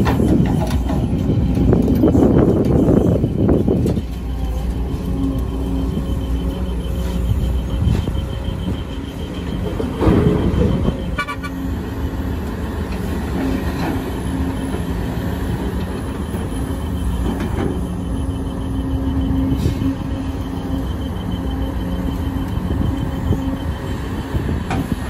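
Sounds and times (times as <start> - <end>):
diesel engines running: 0.0 - 25.0.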